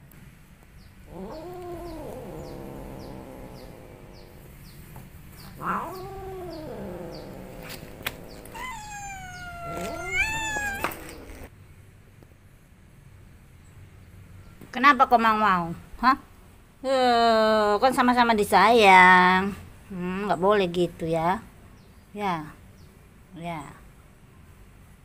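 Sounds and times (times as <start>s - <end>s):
cat yowling: 1.1s - 4.5s, 5.6s - 11.5s.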